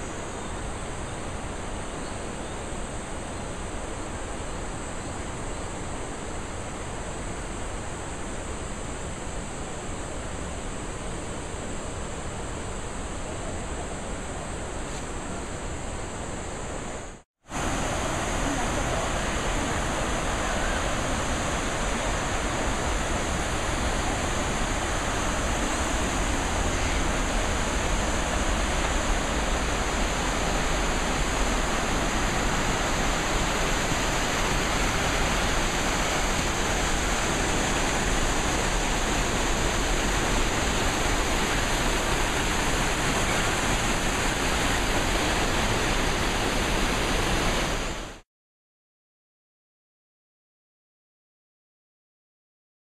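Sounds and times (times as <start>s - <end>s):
river rushing over rocks: 17.5s - 48.2s.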